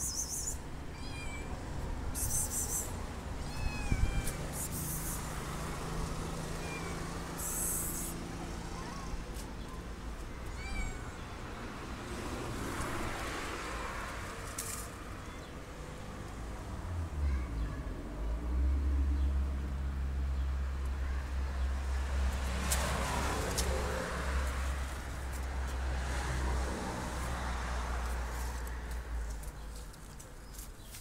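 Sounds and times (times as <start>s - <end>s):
cat meowing: 0.9s - 1.6s, 3.4s - 4.8s, 10.5s - 11.2s.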